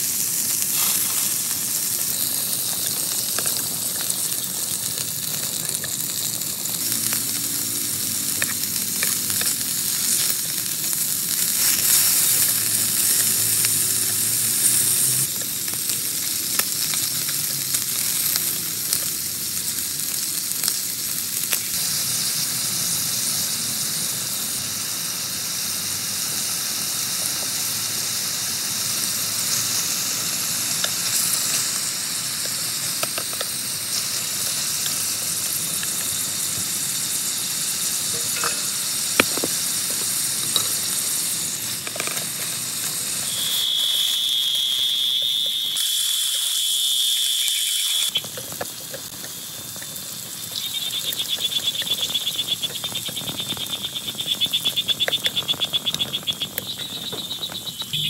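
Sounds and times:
high thin trill: 43.2s - 48.0s.

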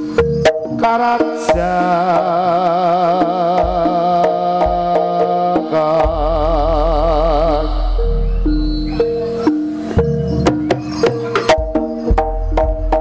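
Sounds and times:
melody with wavering vibrato: 0.0s - 12.6s
hand drum strokes: 0.0s - 13.0s
deep low tone: 6.1s - 9.5s.

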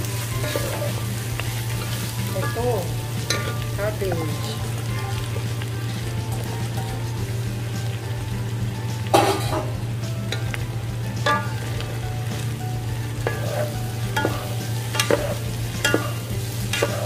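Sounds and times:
cabbage sizzling in frying pan: 0.0s - 17.0s
wooden spatulas knocking pan: 11.2s - 11.9s, 13.2s - 17.0s.

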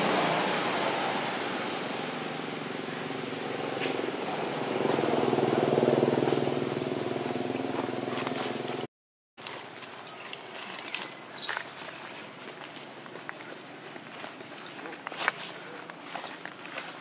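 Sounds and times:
vehicle engine running: 0.0s - 8.9s.

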